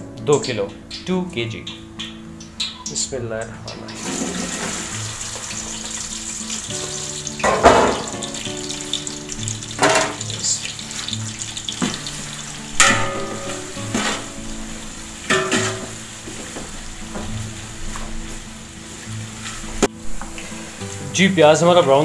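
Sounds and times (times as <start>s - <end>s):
onions sizzling in hot oil: 0.4s - 22.0s
ladle scraping and knocking pot: 12.8s - 14.3s, 15.3s - 16.0s.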